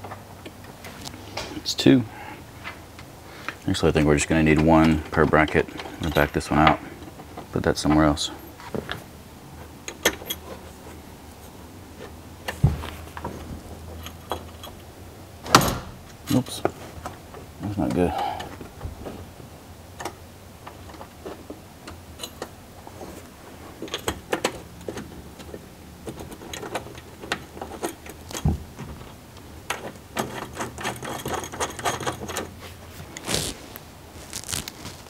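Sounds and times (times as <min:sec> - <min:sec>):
metal bolts clinking: 0:03.9 - 0:08.2, 0:09.8 - 0:10.6, 0:13.9 - 0:14.9, 0:21.8 - 0:22.6, 0:23.8 - 0:28.6, 0:29.6 - 0:32.6.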